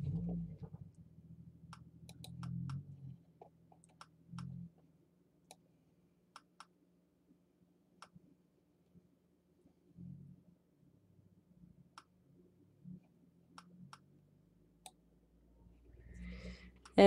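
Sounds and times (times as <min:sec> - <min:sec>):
low hum: 0:00.0 - 0:06.4, 0:07.1 - 0:17.0
computer mouse clicking: 0:01.7 - 0:02.8, 0:03.7 - 0:04.6, 0:06.3 - 0:06.8.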